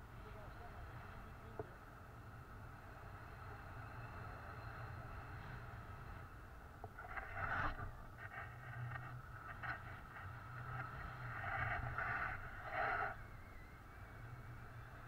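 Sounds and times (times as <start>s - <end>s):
wind rushing over microphone: 5.0s - 15.0s.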